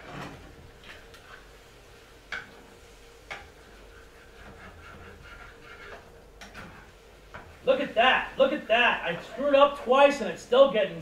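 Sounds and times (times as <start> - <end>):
utensil stirring food in a pan: 0.0 - 10.7
utensil tapping and scraping pan: 3.2 - 7.5.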